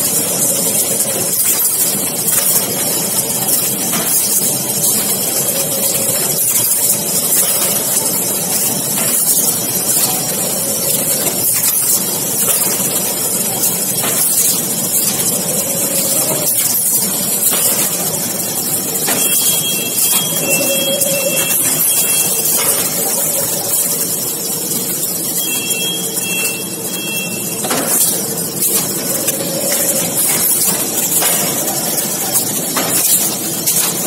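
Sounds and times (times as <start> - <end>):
box-making machine running: 0.0 - 34.0
machine hiss: 0.0 - 34.0
thin high whine: 18.8 - 31.0.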